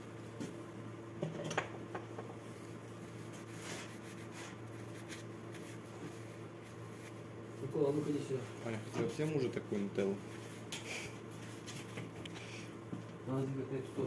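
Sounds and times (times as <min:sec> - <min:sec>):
steady low hum: 0:00.0 - 0:14.0
soft rustle: 0:02.5 - 0:08.9.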